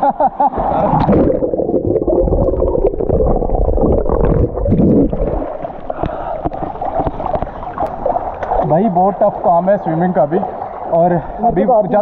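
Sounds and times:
muffled underwater gurgling: 0:00.6 - 0:12.0
water splashing and dripping: 0:01.0 - 0:09.5.

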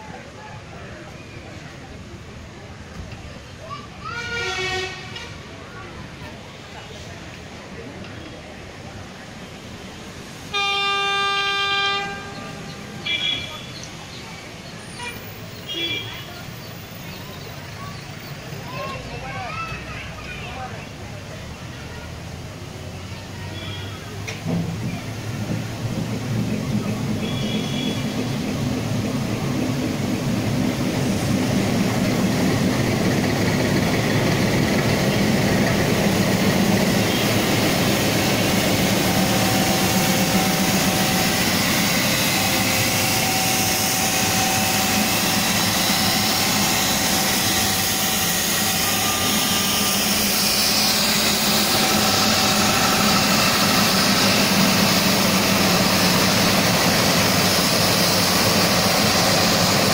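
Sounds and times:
diesel locomotive idling: 0:00.0 - 0:59.9
hiss: 0:35.1 - 0:59.9.

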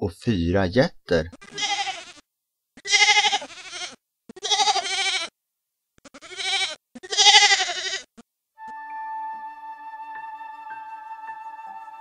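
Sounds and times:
goats bleating: 0:01.3 - 0:02.2, 0:02.8 - 0:05.3, 0:06.0 - 0:08.2.

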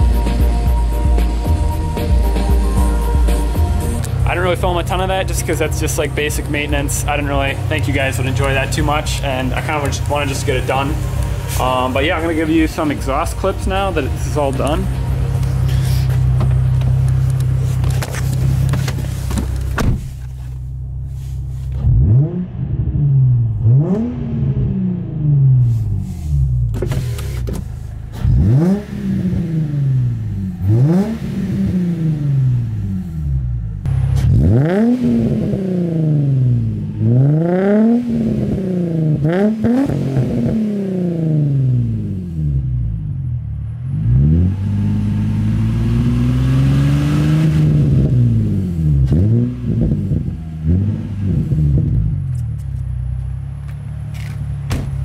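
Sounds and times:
car engine idling and revving: 0:00.0 - 0:55.0.

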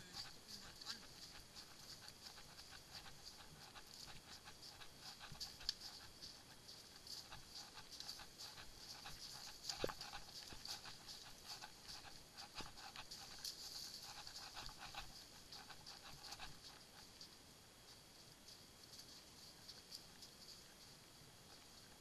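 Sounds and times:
horse hooves crunching snow and leaves: 0:00.0 - 0:22.0.

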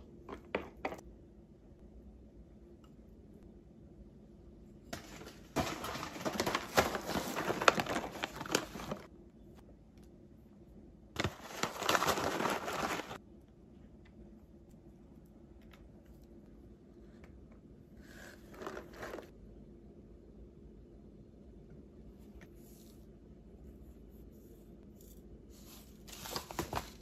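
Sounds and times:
paper pouch crinkling: 0:05.2 - 0:09.1, 0:11.2 - 0:13.2.

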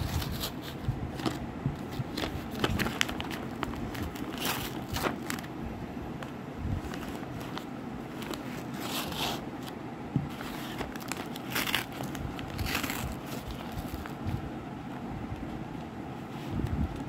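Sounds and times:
paper tearing and crumpling: 0:00.0 - 0:05.5, 0:06.9 - 0:09.7, 0:10.4 - 0:14.3.

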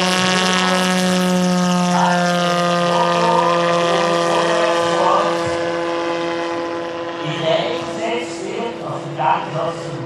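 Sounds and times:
electric motor and propeller whine: 0:00.0 - 0:10.0.

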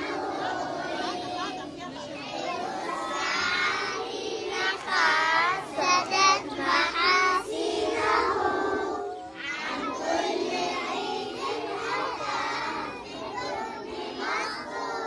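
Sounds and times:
children singing: 0:00.0 - 0:15.0.

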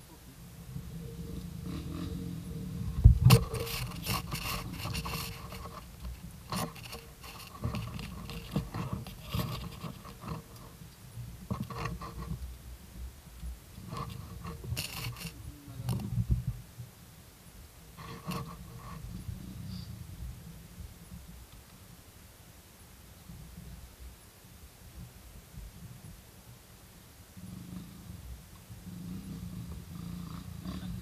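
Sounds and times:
leaves scraping against camera: 0:00.8 - 0:10.8, 0:13.8 - 0:16.3, 0:18.0 - 0:20.0.

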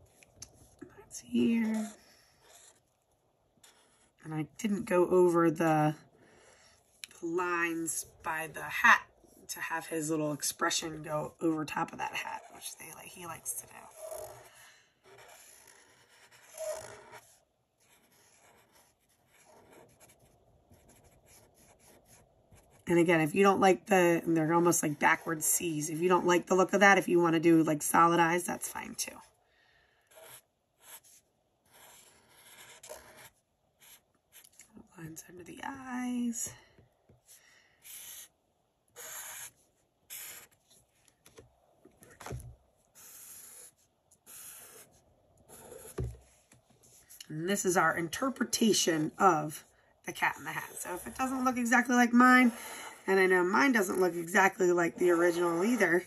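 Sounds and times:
felt-tip marker scratching on paper: 0:01.4 - 0:02.9, 0:03.6 - 0:04.2, 0:12.0 - 0:22.9, 0:30.1 - 0:34.6, 0:37.8 - 0:38.3, 0:39.0 - 0:40.6, 0:43.0 - 0:47.0, 0:53.3 - 0:56.0.

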